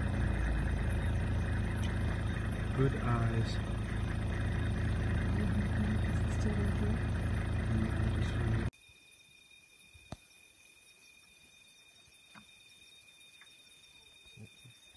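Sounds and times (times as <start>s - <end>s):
vehicle engine idling: 0.0s - 8.7s
insect trilling: 0.0s - 14.9s.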